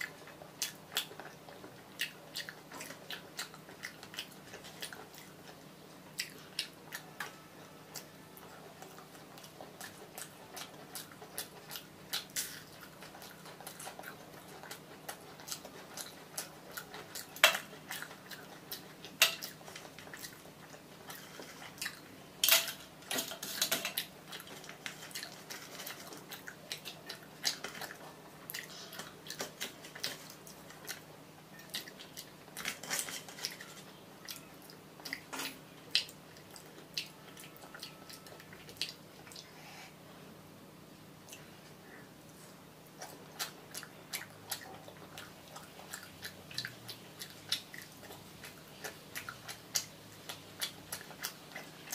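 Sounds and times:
mouth clicks and chewing: 0.0 - 7.3, 8.8 - 22.1, 23.4 - 39.5, 42.9 - 51.9.

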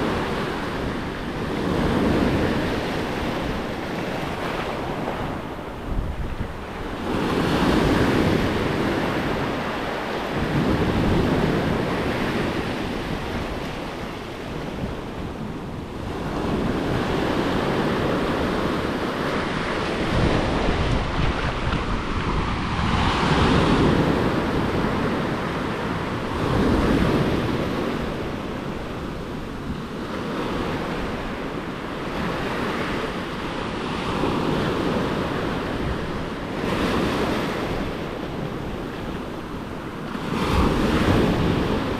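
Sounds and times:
wind rumbling on microphone: 0.0 - 41.9
waves washing over rock: 16.2 - 29.6.

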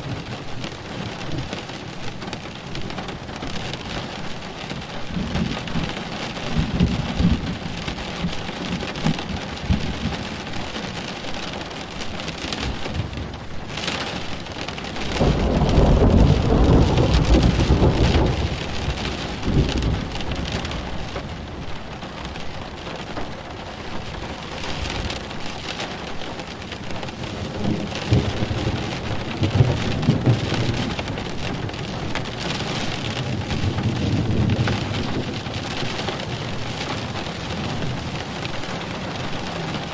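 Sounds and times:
soft thunder rumbles: 0.0 - 11.1, 15.0 - 23.3, 26.5 - 39.9
steady rain falling: 0.0 - 39.9
loud roll of thunder: 15.1 - 20.9, 27.4 - 31.8.

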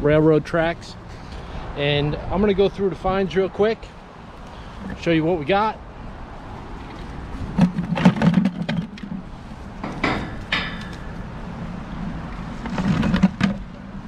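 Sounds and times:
iron spikes clanking on steel grating: 9.8 - 11.2.

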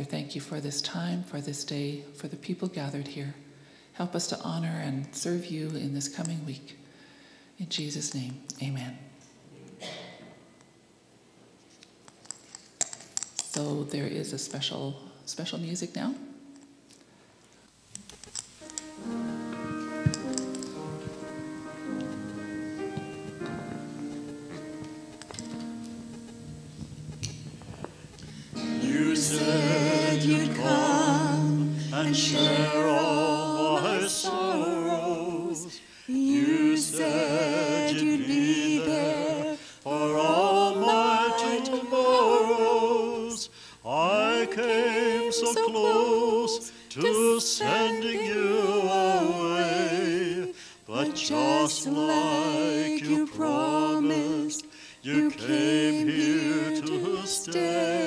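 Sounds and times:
vocal quartet singing a church song: 18.7 - 26.3, 27.2 - 58.0.

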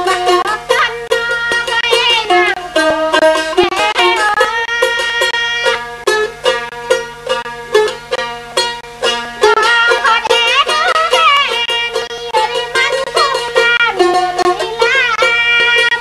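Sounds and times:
person singing: 0.0 - 5.9, 9.4 - 16.0
plucked string melody: 0.0 - 16.0.

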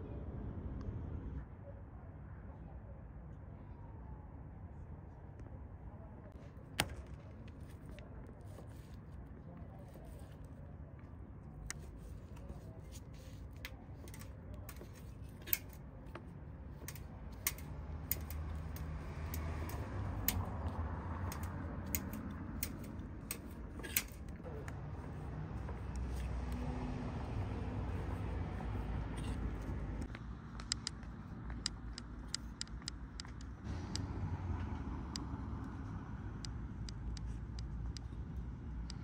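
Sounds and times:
utensils clicking and clinking: 13.4 - 26.6.

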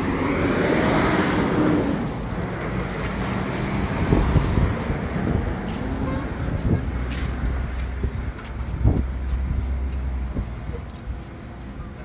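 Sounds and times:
road traffic: 0.0 - 12.0
wind rumbling on microphone: 3.3 - 10.7.

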